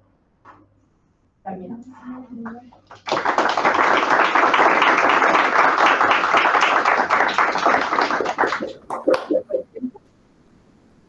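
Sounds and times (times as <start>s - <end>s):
small group applauding: 2.4s - 9.9s.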